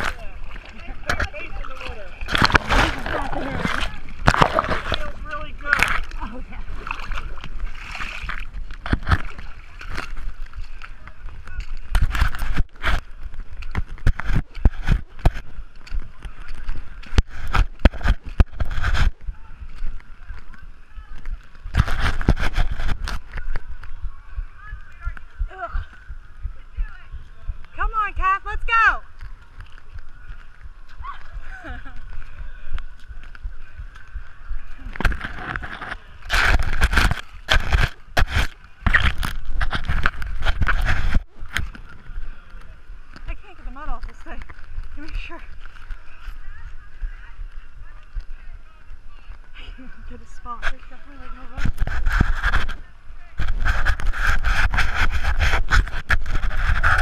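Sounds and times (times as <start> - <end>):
mud and water sloshing: 0.0 - 27.8, 29.0 - 57.0
knocks and scrapes on camera case: 8.3 - 9.4, 17.1 - 19.2, 21.7 - 23.5, 35.0 - 41.7, 51.5 - 52.8, 53.4 - 57.0.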